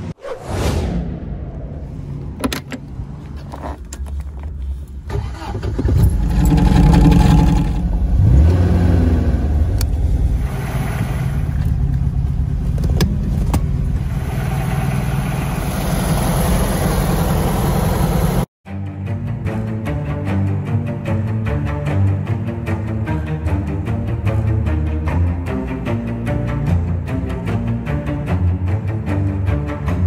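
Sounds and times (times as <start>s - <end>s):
car engine starting and revving: 5.0s - 18.5s.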